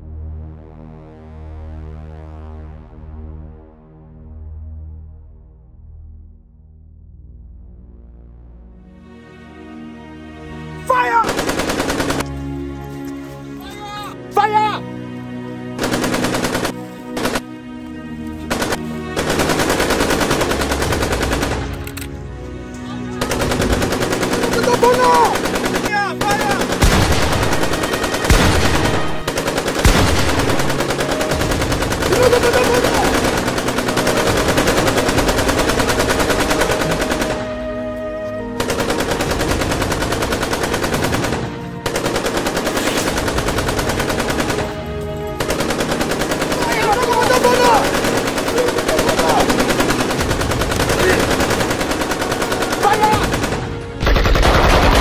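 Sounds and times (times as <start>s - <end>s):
automatic gunfire: 11.2s - 12.3s, 15.8s - 17.5s, 18.5s - 21.8s, 23.2s - 37.5s, 38.6s - 44.8s, 45.4s - 55.0s.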